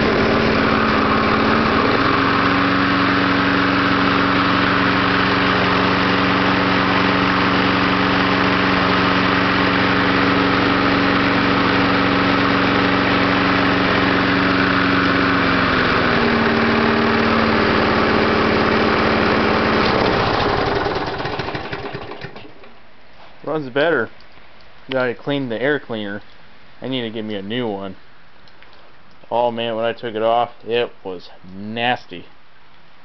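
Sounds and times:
lawn mower engine running: 0.0s - 22.8s.

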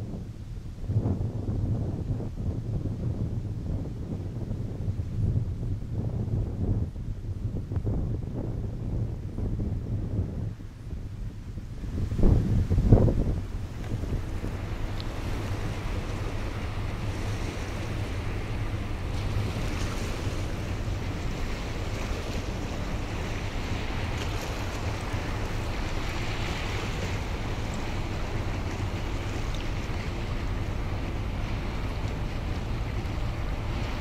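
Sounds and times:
wind on microphone: 0.0s - 34.0s
waves washing: 8.6s - 34.0s
ferry engine drone: 10.4s - 34.0s.

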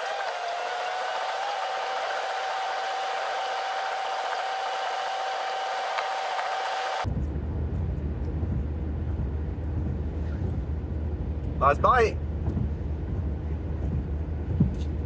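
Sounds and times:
steady hiss: 0.0s - 7.0s
faint steady whine: 0.0s - 15.0s
car cabin rumble while driving: 7.0s - 15.0s.

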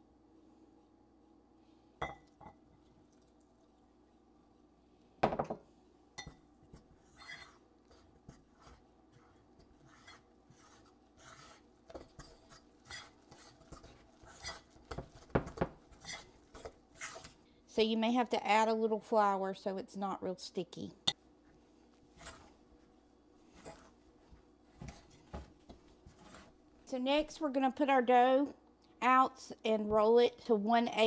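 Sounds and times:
metal utensil scraping ceramic bowl: 7.0s - 8.8s, 9.6s - 17.4s, 22.2s - 22.5s.

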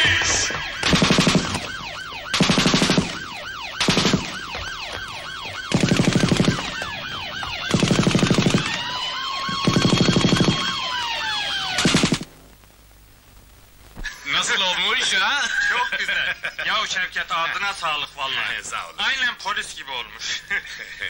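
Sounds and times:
police siren wailing: 0.0s - 12.0s
machine-gun fire: 0.7s - 4.5s, 5.6s - 10.9s, 11.6s - 12.3s.

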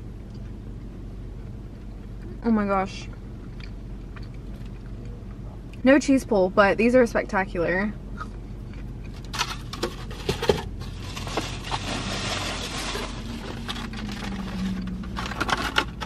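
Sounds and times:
bag rustling: 10.9s - 15.6s.

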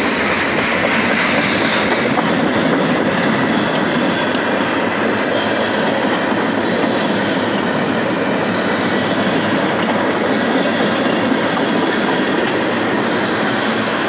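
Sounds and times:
train wheels on rails: 0.0s - 14.0s.

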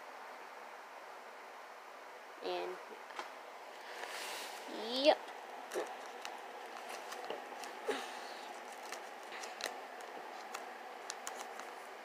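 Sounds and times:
plastic binder sleeves crinkling: 5.6s - 12.0s.

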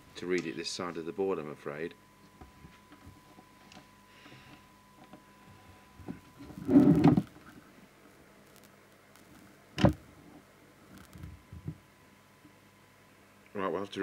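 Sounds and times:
scraping rustle: 6.3s - 7.7s.

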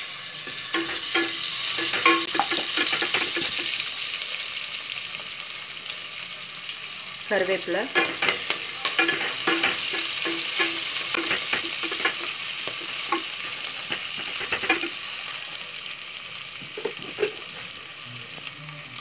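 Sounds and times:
onions sizzling in hot oil: 0.0s - 19.0s
spatula scraping and knocking pan: 0.5s - 3.8s, 8.0s - 15.0s, 16.6s - 17.7s.

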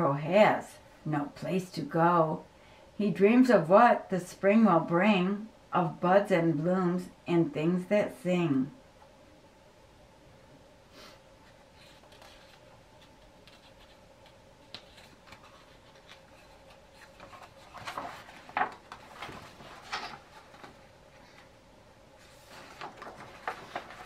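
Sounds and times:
faint steady hum: 0.0s - 24.0s
paper rustling: 11.4s - 21.5s, 22.2s - 24.0s
page turning: 11.8s - 21.5s, 22.2s - 24.0s.

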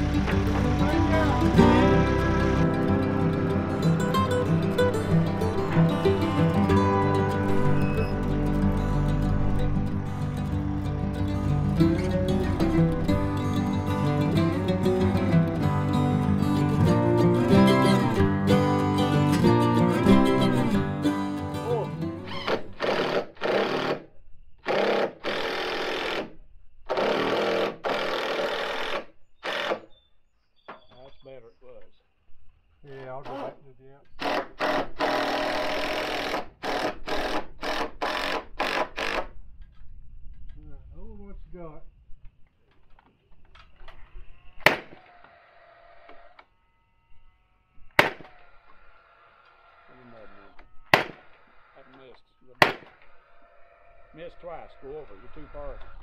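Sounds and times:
ringing tone: 6.8s - 10.2s
impact driver driving screws: 22.3s - 29.9s, 34.2s - 39.3s
sharp strikes on roof framing: 44.6s - 45.0s, 48.0s - 48.4s, 50.9s - 51.4s, 52.6s - 53.0s.

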